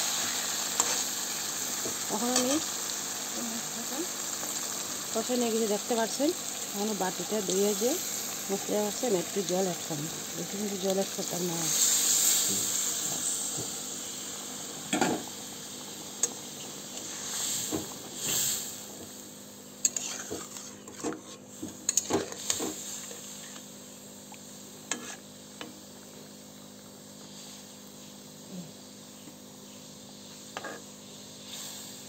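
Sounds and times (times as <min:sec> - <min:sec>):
curry sizzling in a pan: 0:00.0 - 0:32.0
metal spatula scraping a pan: 0:19.8 - 0:23.5, 0:24.9 - 0:25.2, 0:30.6 - 0:30.9.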